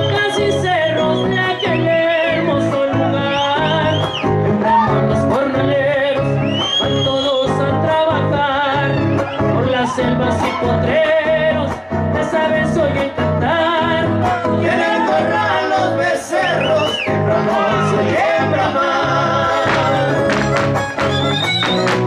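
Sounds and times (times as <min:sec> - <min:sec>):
strummed guitars: 0:00.0 - 0:22.0
violin melody with vibrato: 0:19.4 - 0:22.0.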